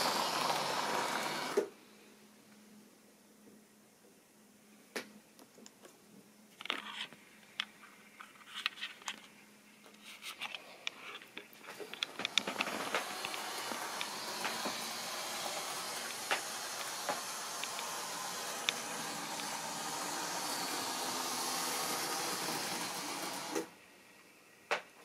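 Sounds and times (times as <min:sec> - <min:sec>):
model train whirring: 0:00.0 - 0:01.7, 0:11.7 - 0:23.7
faint steady hum: 0:00.0 - 0:25.0
wheels clicking over rail joints: 0:11.7 - 0:23.7.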